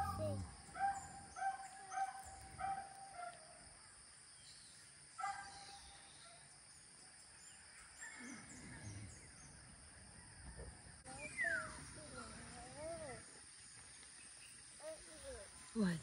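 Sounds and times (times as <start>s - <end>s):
faint high bird chirps: 11.1s - 16.0s.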